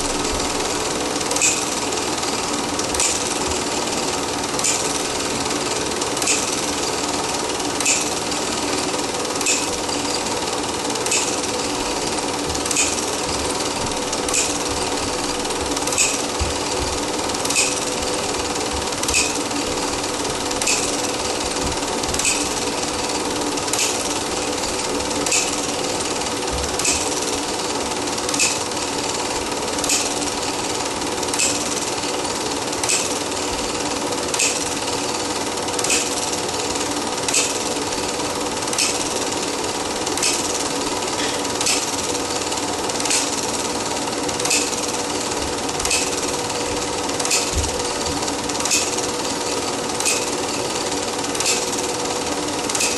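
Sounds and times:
film projector whirring: 0.0 - 52.9.

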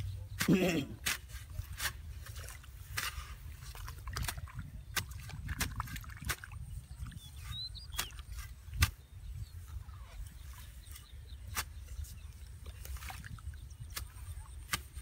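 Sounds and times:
wind rumble on microphone: 1.5 - 15.0
bird chirp: 6.6 - 15.0.

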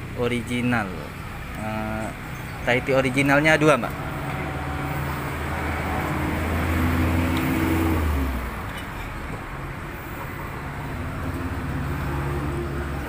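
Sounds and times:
another vehicle approaching: 0.0 - 13.0
vehicle engine hum: 0.0 - 13.0.

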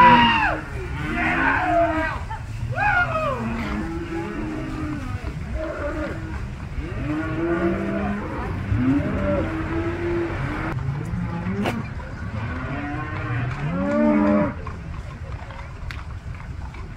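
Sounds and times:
cattle mooing: 3.3 - 14.7.

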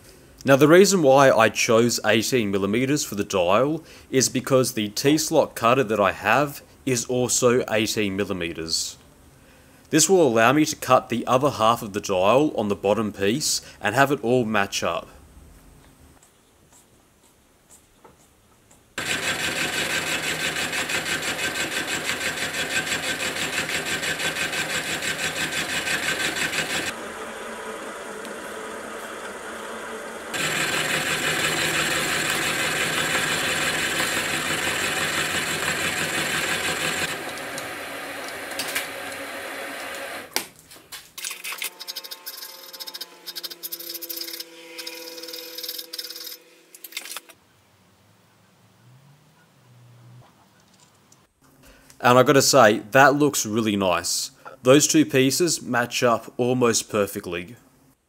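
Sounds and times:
milling machine cutting steel: 19.0 - 40.3.

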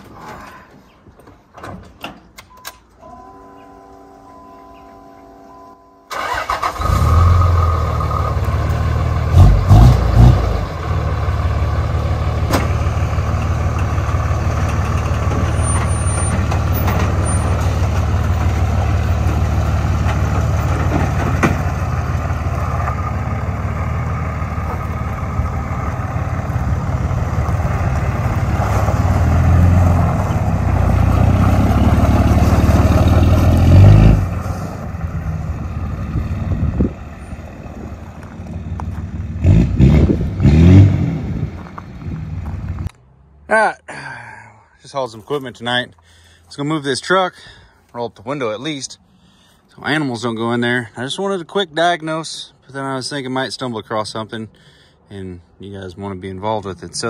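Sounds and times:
diesel truck engine running: 6.1 - 43.2.

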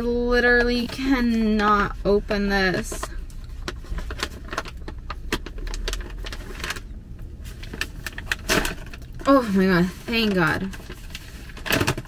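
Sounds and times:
plastic snack bag crackling: 3.5 - 12.0.

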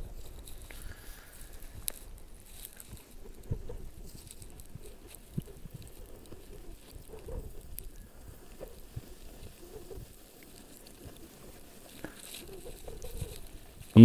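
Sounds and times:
calves tearing grass: 0.1 - 14.0.

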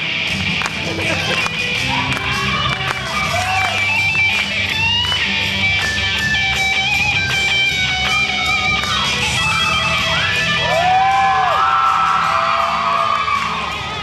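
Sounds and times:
electric guitar lead: 0.0 - 10.6.

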